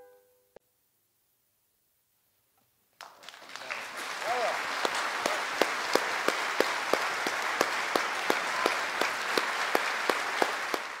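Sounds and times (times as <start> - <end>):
audience applauding: 3.0 - 11.0
loud rhythmic claps: 3.0 - 11.0.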